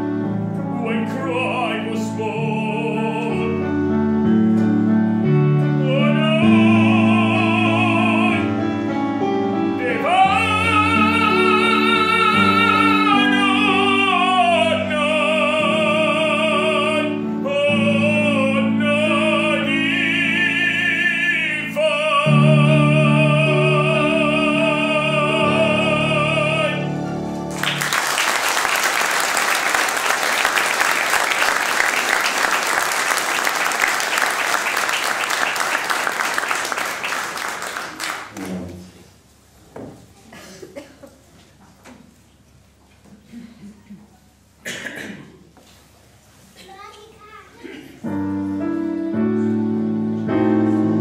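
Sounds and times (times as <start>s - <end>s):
piano accompaniment: 0.0s - 39.3s, 48.0s - 51.0s
man singing opera: 0.6s - 4.1s, 5.3s - 27.3s
applause: 27.5s - 38.6s.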